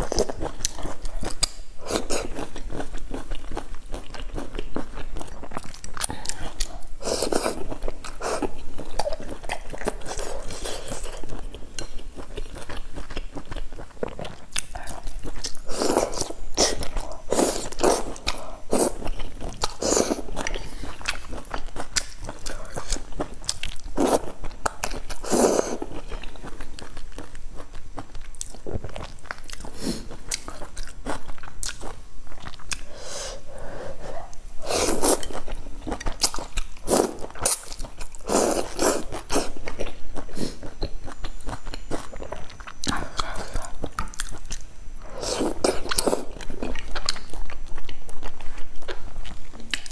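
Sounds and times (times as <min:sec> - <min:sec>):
person chewing food: 0:00.0 - 0:49.9.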